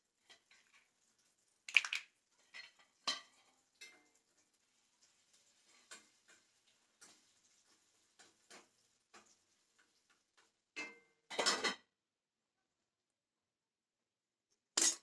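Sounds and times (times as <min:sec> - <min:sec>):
utensils clinking on cookware: 0:01.8 - 0:04.1, 0:10.8 - 0:11.9, 0:14.8 - 0:15.0
loud clatter of utensils: 0:10.8 - 0:11.9, 0:14.8 - 0:15.0.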